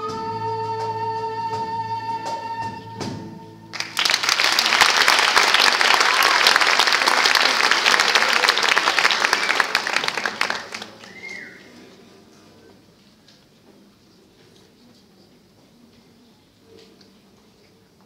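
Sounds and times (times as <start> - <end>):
audience clapping: 3.7 - 11.9.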